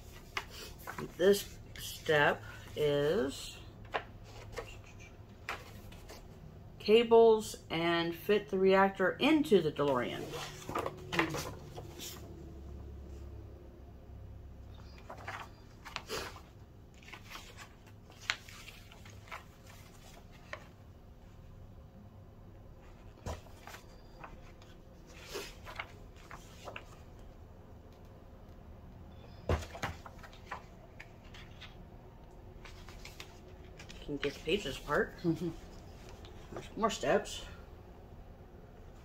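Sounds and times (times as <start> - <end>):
paper pages rustling: 0.0 - 2.8, 10.2 - 12.4, 14.8 - 20.8, 22.9 - 27.2, 29.3 - 31.8, 32.5 - 36.8.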